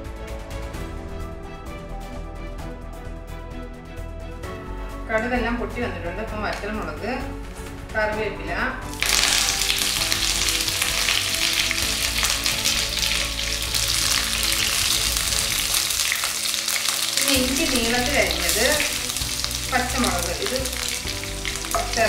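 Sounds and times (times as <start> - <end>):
background music: 0.0 - 22.0
spices sizzling in hot oil: 8.9 - 22.0.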